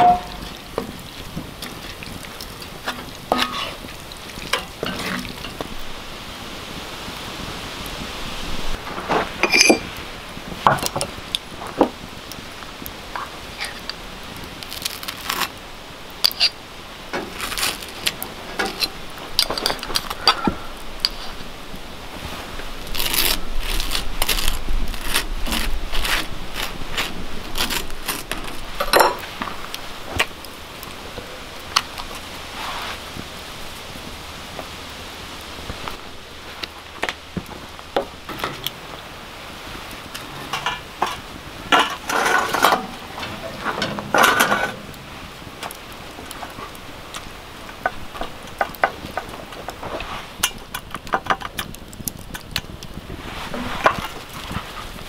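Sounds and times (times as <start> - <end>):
utensils knocking on cast iron: 0.0 - 1.0
knife scraping toast: 23.0 - 28.6.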